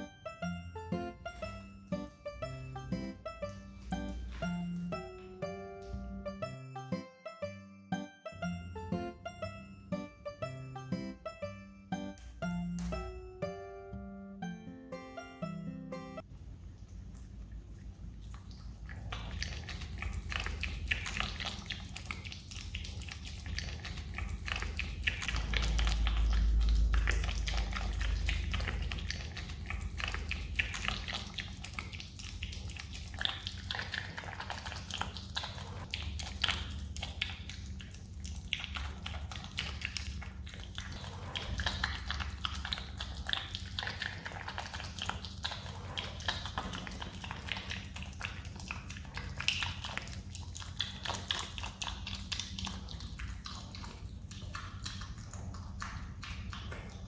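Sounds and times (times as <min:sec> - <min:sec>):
animal chewing with wet smacking: 0:16.3 - 0:57.0
low rumble: 0:25.3 - 0:30.2.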